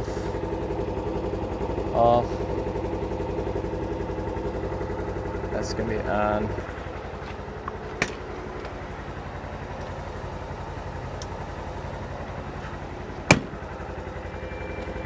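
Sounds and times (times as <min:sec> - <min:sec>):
utility vehicle engine idling: 0:00.0 - 0:15.0
car door slamming: 0:13.2 - 0:13.6.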